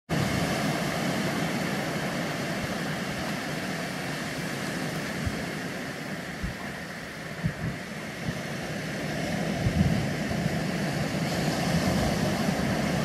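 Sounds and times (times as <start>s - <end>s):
surf washing up pebble beach: 0.1s - 13.0s
wind thumps on microphone: 4.9s - 8.6s, 9.2s - 13.0s.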